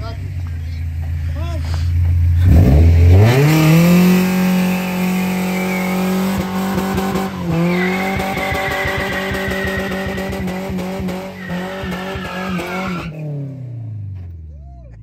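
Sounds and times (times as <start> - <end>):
truck engine revving: 2.3 - 13.8
tyre squealing: 4.6 - 13.2.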